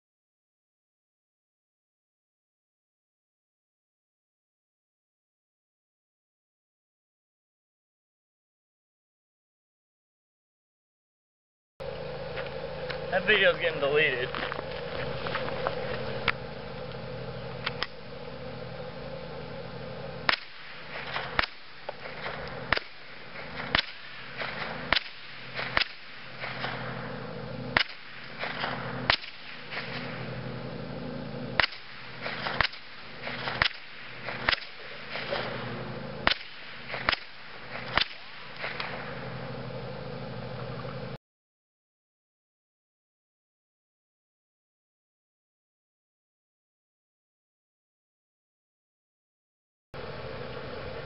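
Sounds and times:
steady low hum: 11.8 - 41.2, 50.0 - 51.0
gunshots: 20.2 - 30.4, 31.6 - 39.3.

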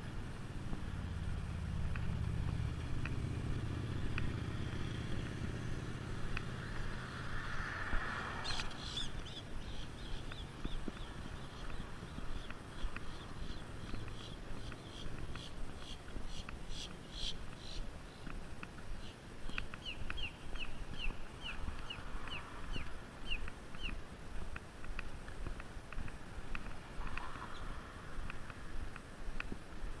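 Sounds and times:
distant traffic: 0.0 - 30.0
footsteps on a sidewalk: 0.0 - 30.0
wind rumble: 0.0 - 30.0
bird chirping: 8.4 - 18.3, 19.0 - 24.0.

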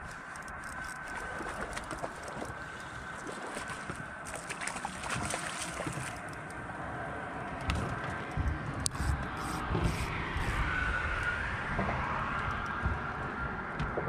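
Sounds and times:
fishing reel clicking: 0.0 - 2.5, 8.8 - 10.7
water lapping at hull: 0.0 - 11.2
wind: 0.0 - 14.0
faint high whine: 8.8 - 12.3.

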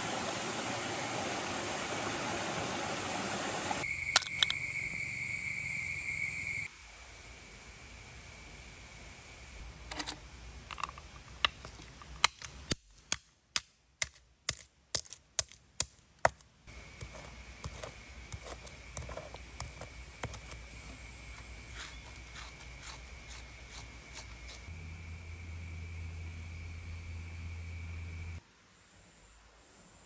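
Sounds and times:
high insect drone: 3.8 - 9.8, 16.7 - 28.4
shells crunching and grinding: 10.7 - 16.4, 17.0 - 24.7
stone knocking on shells: 13.0 - 16.4, 17.0 - 20.6.

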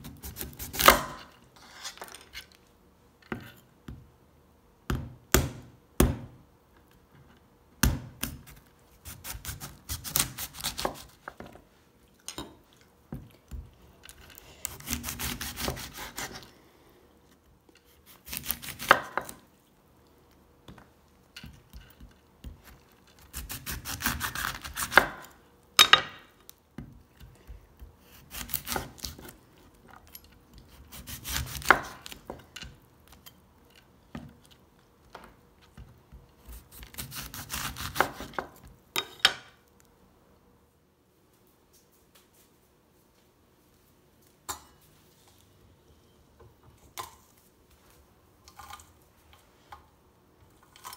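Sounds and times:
knife cutting fruit rind: 0.0 - 2.6, 7.8 - 11.4, 13.5 - 16.5, 17.8 - 19.5, 21.4 - 25.4, 26.8 - 34.6, 35.6 - 39.2.

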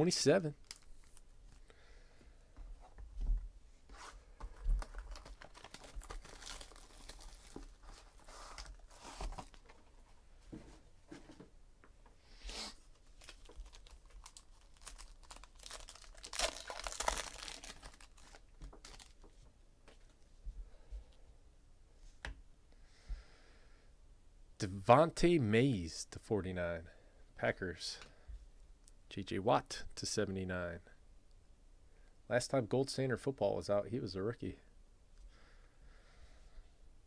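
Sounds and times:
paper and foil tearing and crinkling: 4.8 - 9.6, 13.0 - 19.2.

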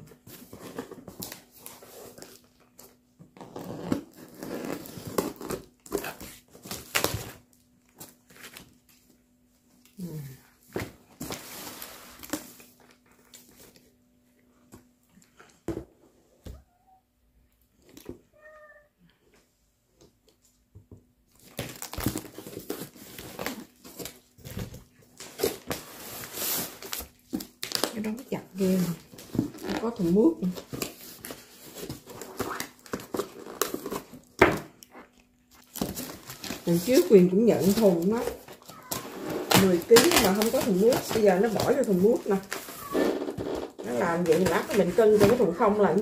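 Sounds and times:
plastic film crinkling: 21.3 - 46.0.

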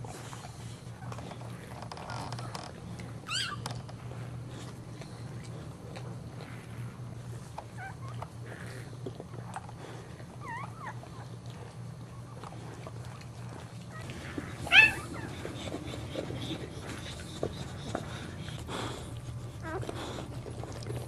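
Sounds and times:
puppy squeaking: 3.2 - 3.8, 14.6 - 16.2
puppy squealing: 3.2 - 3.8, 14.5 - 16.4.

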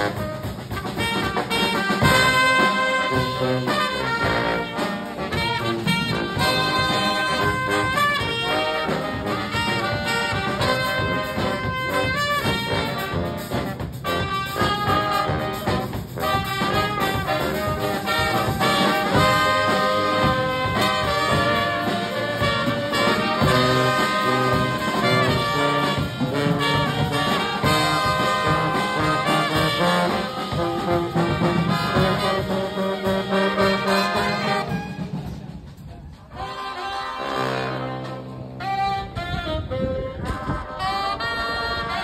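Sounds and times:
brass band playing: 0.0 - 42.0.

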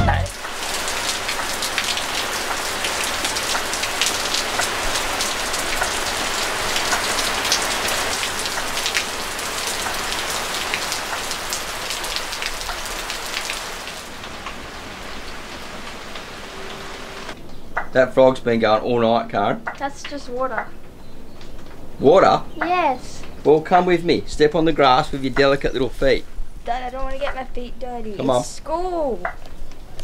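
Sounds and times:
heavy rain on foliage: 0.0 - 17.4.

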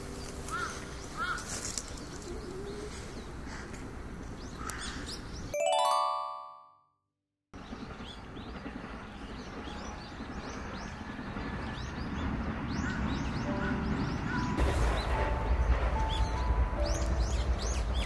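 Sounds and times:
small birds chirping: 0.1 - 5.5
chime ringing: 5.6 - 6.8.

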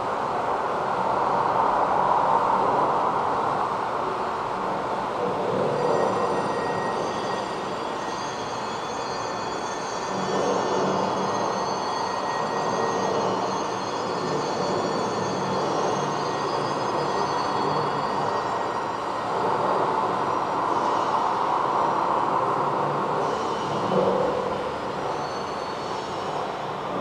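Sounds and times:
faint high steady tones: 5.6 - 27.0.

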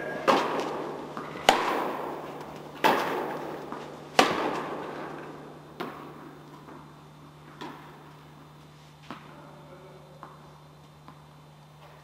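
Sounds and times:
tennis ball struck by racket: 0.0 - 5.1.

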